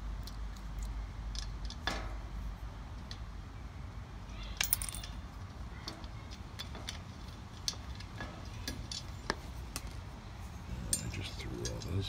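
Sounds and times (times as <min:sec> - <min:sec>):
low steady rumble: 0:00.0 - 0:12.0
metallic clicks of bolt and nut: 0:00.2 - 0:02.2, 0:04.6 - 0:10.0, 0:10.8 - 0:12.0.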